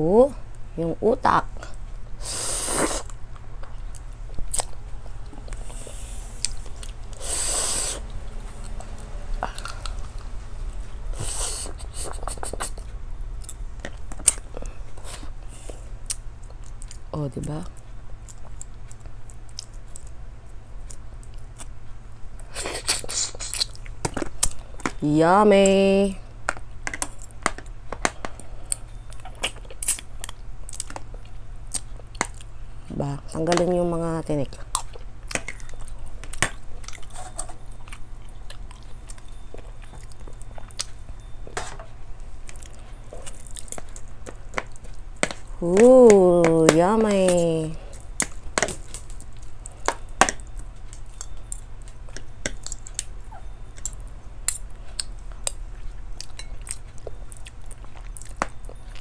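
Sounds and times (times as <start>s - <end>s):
low hum: 0.0s - 59.0s
sucking sounds: 2.2s - 3.1s, 5.4s - 12.8s
person chewing wetly: 2.7s - 10.1s, 26.5s - 32.5s, 34.5s - 41.3s, 42.4s - 45.6s, 47.8s - 59.0s.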